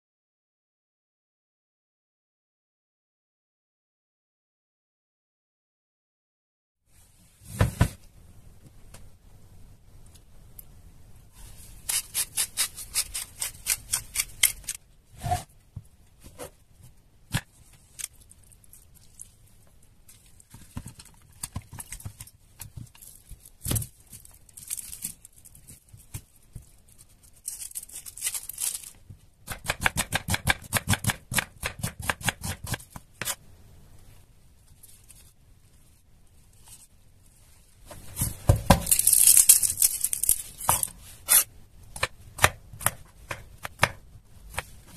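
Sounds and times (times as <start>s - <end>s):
papery garlic crackle: 17.8s - 29.0s, 38.9s - 41.0s.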